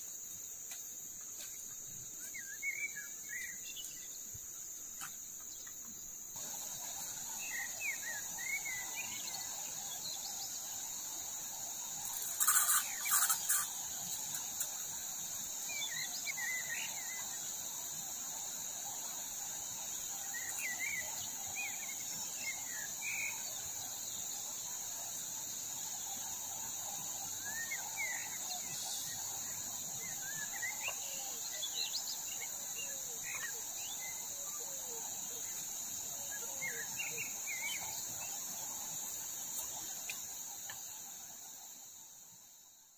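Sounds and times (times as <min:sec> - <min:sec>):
insects droning: 0:00.0 - 0:42.9
chirping bird calls: 0:12.0 - 0:14.5.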